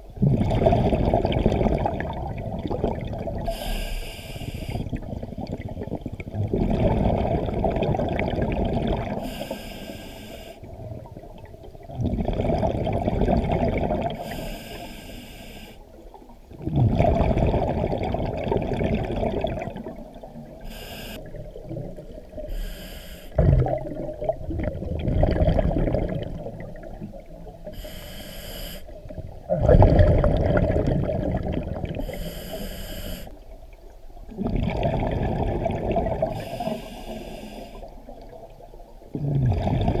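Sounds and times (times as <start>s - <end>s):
exhaled bubbles rushing: 0.2s - 3.6s, 4.8s - 9.2s, 10.6s - 14.2s, 16.2s - 20.6s, 21.2s - 22.5s, 23.3s - 27.7s, 28.9s - 32.1s, 34.2s - 36.8s, 38.0s - 40.0s
regulator inhalation hiss: 3.5s - 4.9s, 9.2s - 10.6s, 14.2s - 15.8s, 20.6s - 21.2s, 22.5s - 23.4s, 27.8s - 28.9s, 32.0s - 33.4s, 36.3s - 37.9s.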